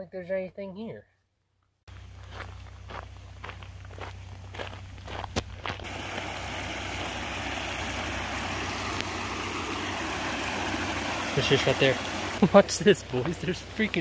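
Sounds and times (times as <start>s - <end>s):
footsteps on gravel: 1.9s - 6.2s, 12.5s - 14.0s
stream splashing over rocks: 5.4s - 14.0s.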